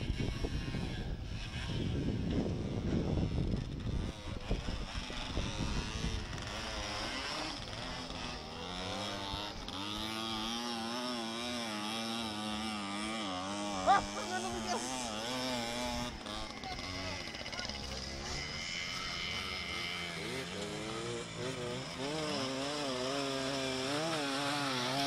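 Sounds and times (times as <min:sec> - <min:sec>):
dirt bike engine revving: 0:00.0 - 0:25.0.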